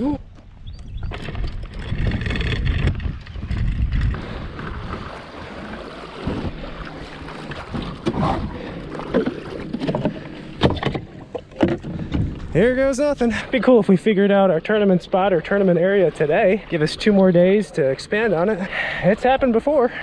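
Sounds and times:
wind buffeting microphone: 0:00.5 - 0:05.4
kayak hull scraping over gravel: 0:01.1 - 0:10.6
water splashing and lapping: 0:01.1 - 0:20.0.

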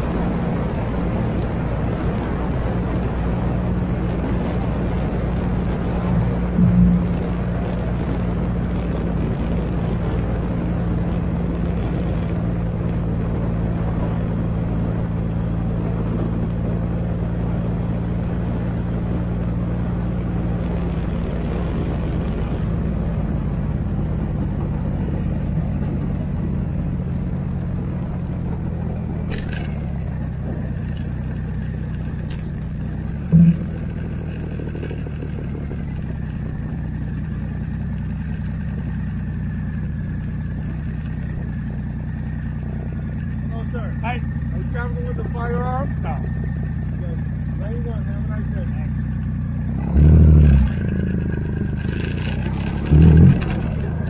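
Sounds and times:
wind noise on microphone: 0:00.0 - 0:43.2
motorcycle engine running: 0:00.0 - 0:54.0.

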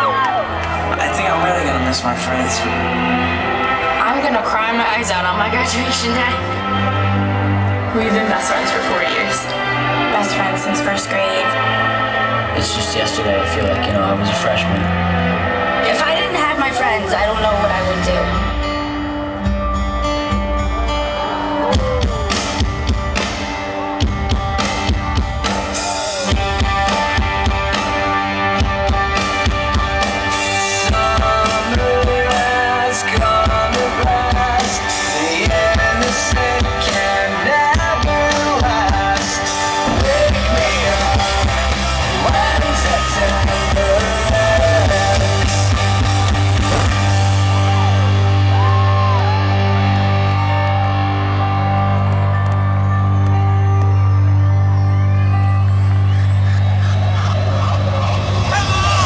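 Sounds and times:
loud rock music with singing: 0:00.0 - 0:59.0
low bass note: 0:45.8 - 0:49.2.

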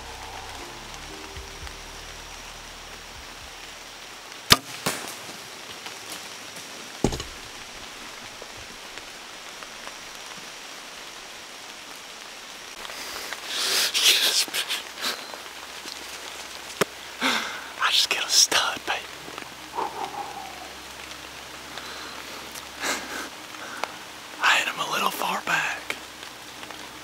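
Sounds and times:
sharp cracks: 0:04.5 - 0:05.4.

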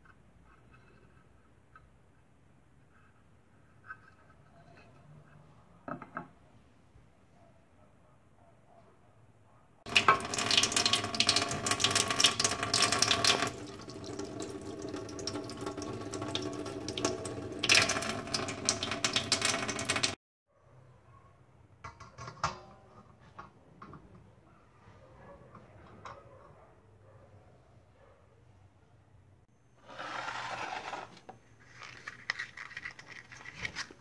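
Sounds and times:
tap running into metal sink: 0:09.9 - 0:20.1.

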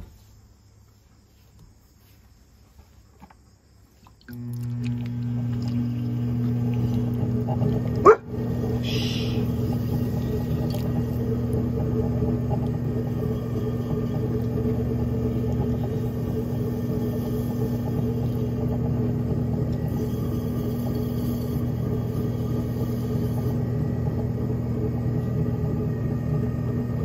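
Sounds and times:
pottery wheel motor humming: 0:04.2 - 0:27.0
loud rising squeak: 0:08.4 - 0:11.2.

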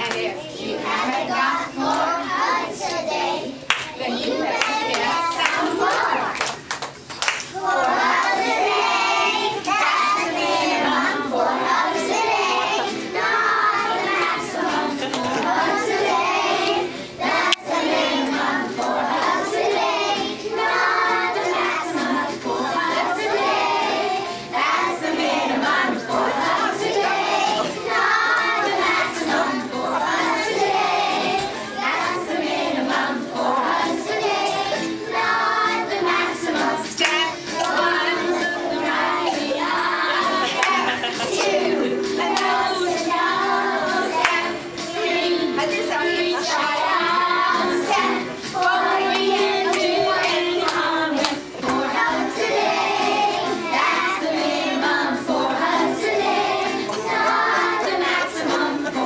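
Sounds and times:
children singing in unison: 0:00.0 - 0:06.4, 0:07.5 - 0:59.0.

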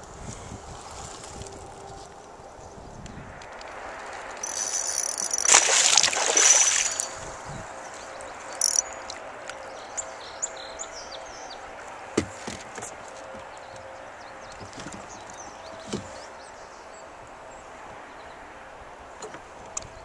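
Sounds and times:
water splashing beside boat: 0:04.1 - 0:07.5.

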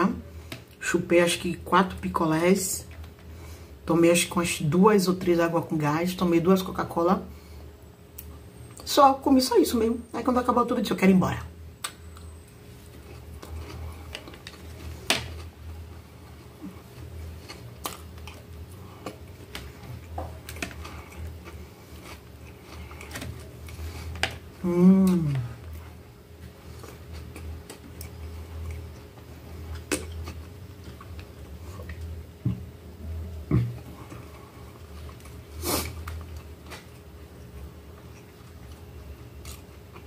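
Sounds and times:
steady low hum: 0:00.0 - 0:40.0
chewing: 0:12.9 - 0:24.4, 0:25.0 - 0:32.2, 0:33.6 - 0:40.0
person humming mmm: 0:24.6 - 0:25.7, 0:33.0 - 0:34.0.

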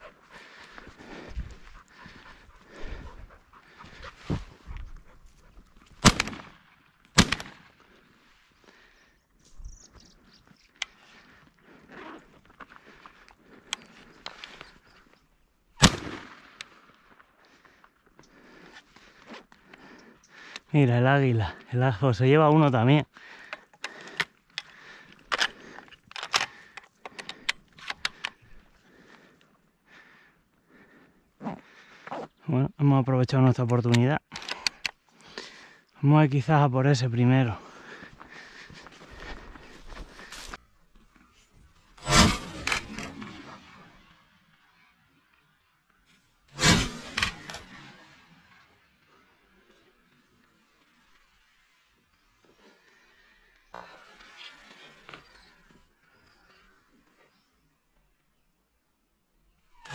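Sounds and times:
dog panting: 0:00.0 - 0:05.8
shotgun shots: 0:06.0 - 0:06.6, 0:07.2 - 0:07.7, 0:15.8 - 0:16.6
sharp clicks and rattles: 0:23.5 - 0:28.5.

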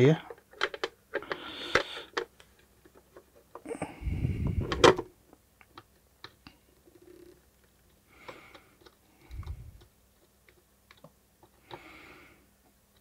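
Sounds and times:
small clicks and taps: 0:07.5 - 0:11.9.

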